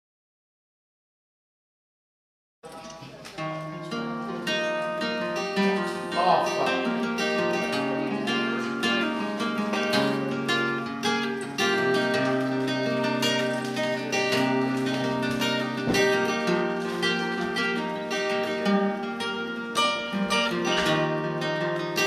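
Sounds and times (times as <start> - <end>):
acoustic guitar playing: 2.7 - 22.0.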